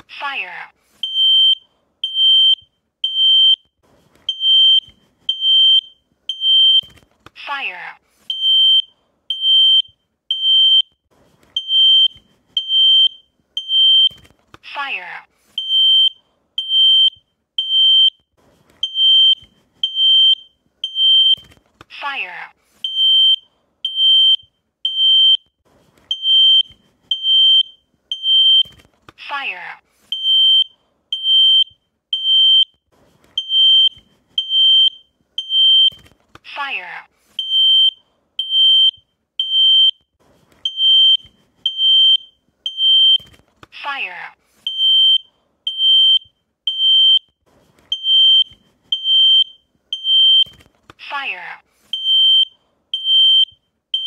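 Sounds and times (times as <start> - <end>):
smoke alarm high-pitched beeps: 1.0 - 3.7, 4.3 - 7.0, 8.3 - 11.0, 11.6 - 14.3, 15.6 - 21.5, 22.8 - 25.5, 26.1 - 28.8, 30.1 - 32.8, 33.4 - 36.0, 37.4 - 43.3, 44.6 - 50.6, 51.9 - 54.0.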